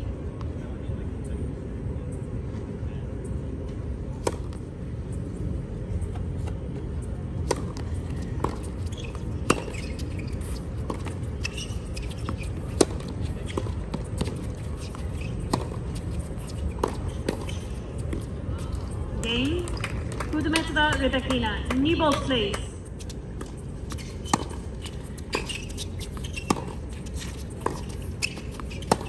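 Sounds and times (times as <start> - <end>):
low background hum: 0.0 - 29.0
rackets hitting tennis ball: 23.4 - 29.0.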